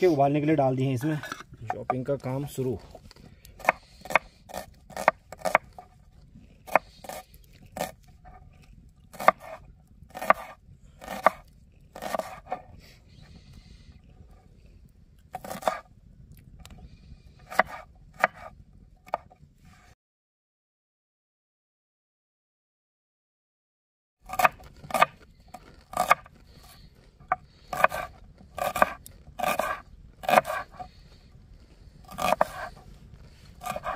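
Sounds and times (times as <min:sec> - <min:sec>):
knife chopping on cutting board: 0:03.6 - 0:05.6, 0:09.2 - 0:09.6, 0:10.2 - 0:11.4, 0:12.0 - 0:12.6, 0:17.5 - 0:18.5, 0:25.9 - 0:26.3, 0:27.3 - 0:30.8, 0:32.1 - 0:32.7, 0:33.6 - 0:33.9.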